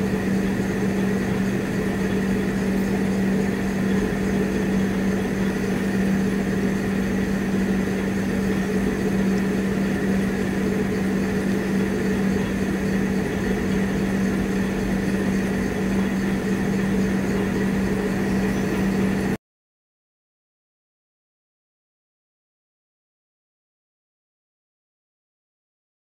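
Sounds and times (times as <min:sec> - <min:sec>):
steady mechanical hum: 0:00.0 - 0:19.4.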